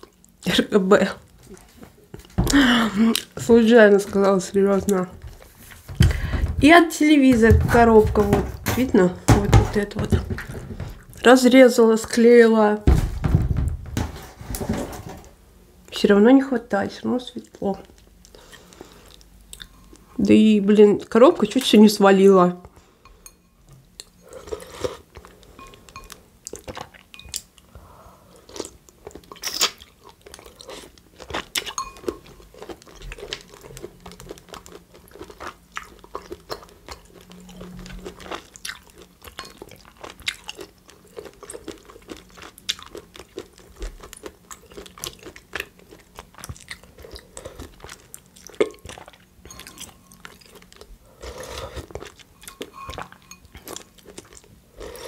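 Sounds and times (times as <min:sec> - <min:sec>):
person chewing crunchy food: 0:17.8 - 0:20.1, 0:23.9 - 0:55.0.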